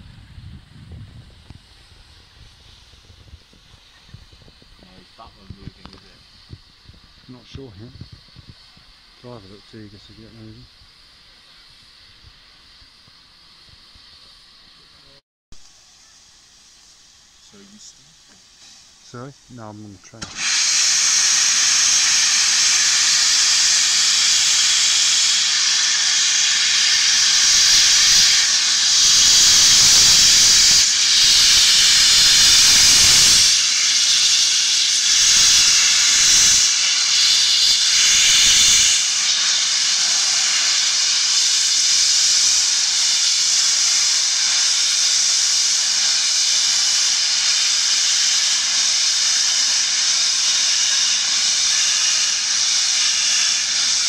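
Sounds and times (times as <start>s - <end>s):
steam hissing from locomotive: 0.0s - 54.0s.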